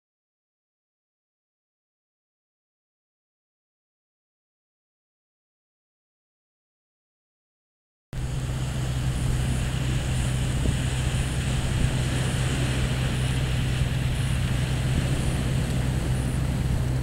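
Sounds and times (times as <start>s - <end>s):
small waves breaking on sand: 8.2s - 17.0s
wind rumble on microphone: 8.2s - 17.0s.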